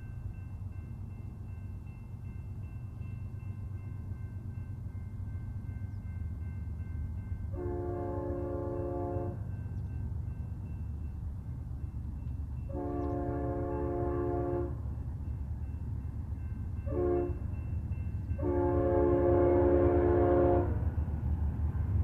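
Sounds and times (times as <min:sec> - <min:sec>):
distant locomotive horn blast: 0:07.5 - 0:09.5, 0:12.7 - 0:14.9, 0:16.8 - 0:17.6, 0:18.4 - 0:21.0.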